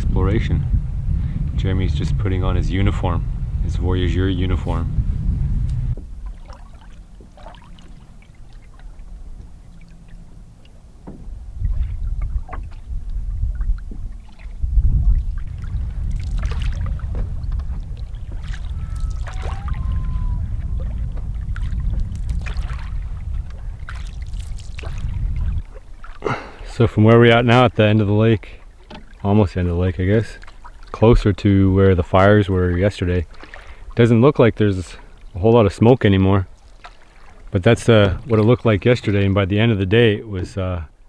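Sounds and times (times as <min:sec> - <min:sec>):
steady low rumble: 0:00.0 - 0:28.6
paddle splashing in water: 0:05.6 - 0:34.0, 0:36.1 - 0:40.0.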